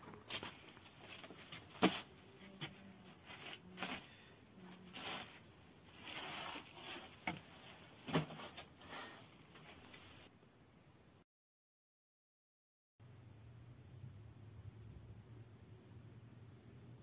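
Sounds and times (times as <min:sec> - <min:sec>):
flatbread rustling and scraping: 0:04.8 - 0:10.3.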